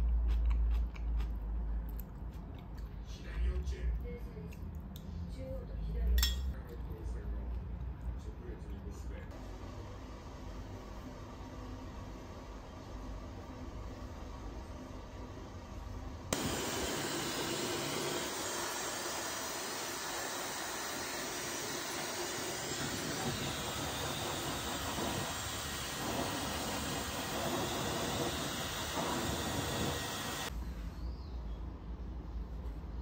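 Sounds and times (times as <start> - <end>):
hair dryer blowing: 16.3 - 30.5.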